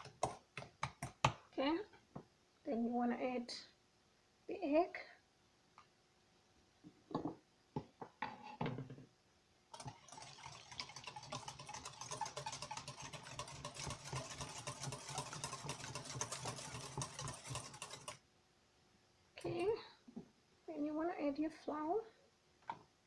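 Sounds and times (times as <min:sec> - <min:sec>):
whisk clattering in metal bowl: 0:09.8 - 0:18.2.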